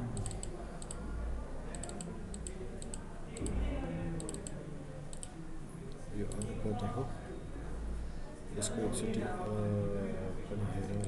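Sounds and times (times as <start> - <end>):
computer mouse clicking: 0.1 - 1.0, 1.7 - 3.5, 4.2 - 6.5.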